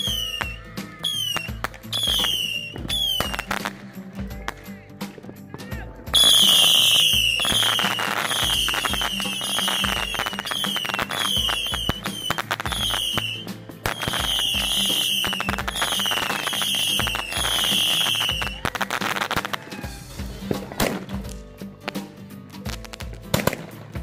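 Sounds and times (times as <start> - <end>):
firework whistling shots: 0.0 - 3.9, 6.2 - 20.0
dense crackling: 0.0 - 19.6.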